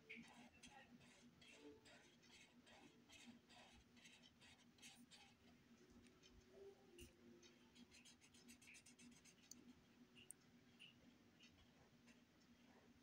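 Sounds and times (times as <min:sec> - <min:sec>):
marker scratching on paper: 0:00.1 - 0:05.5, 0:07.7 - 0:10.9.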